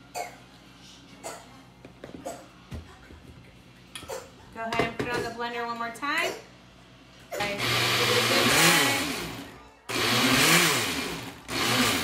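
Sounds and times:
countertop blender running: 7.4 - 12.0.

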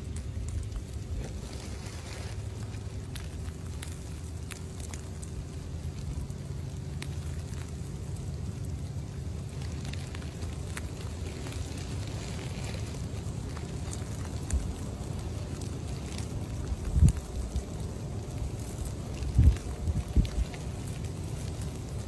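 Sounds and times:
grass rustling: 0.0 - 22.0
wind buffeting microphone: 16.6 - 17.8, 18.9 - 20.8.

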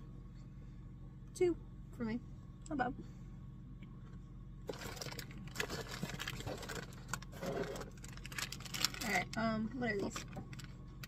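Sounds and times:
steady low hum: 0.0 - 11.0
plastic packaging crinkling: 4.7 - 11.0.

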